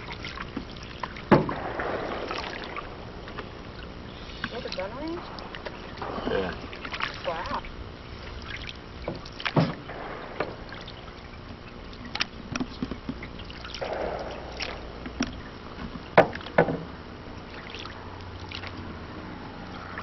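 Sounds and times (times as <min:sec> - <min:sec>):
paddle swishing water: 0:00.0 - 0:20.0
paddle knocking against hull: 0:00.5 - 0:03.5, 0:09.0 - 0:17.0.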